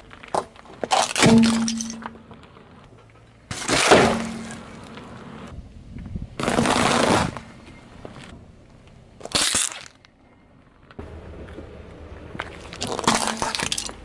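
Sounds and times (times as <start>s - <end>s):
tyre crushing objects on asphalt: 0.0s - 2.6s, 3.5s - 5.4s, 6.4s - 8.4s, 9.2s - 10.1s, 11.3s - 14.0s
balloon bursting with rush of air: 6.4s - 7.5s.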